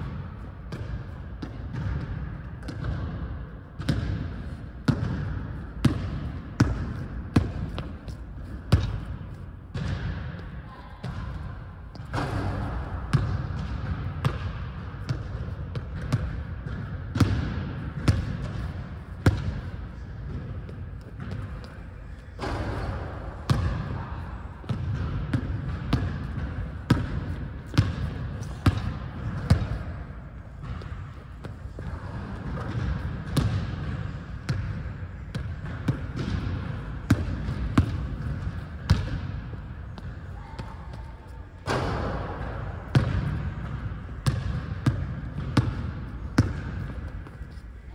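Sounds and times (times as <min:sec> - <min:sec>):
basketball bouncing on wooden floor: 0:04.9 - 0:11.3, 0:11.9 - 0:19.7, 0:24.7 - 0:30.0, 0:30.6 - 0:40.7, 0:41.7 - 0:47.4.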